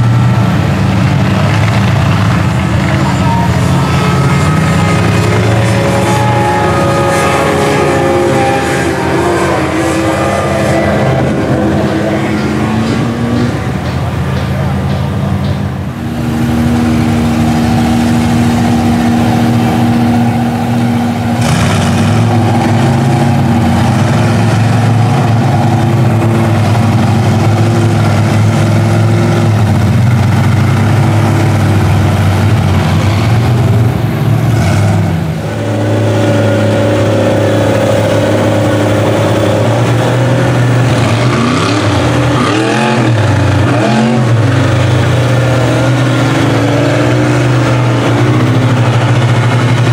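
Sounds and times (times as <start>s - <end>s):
monster truck engines revving: 0.0s - 49.9s.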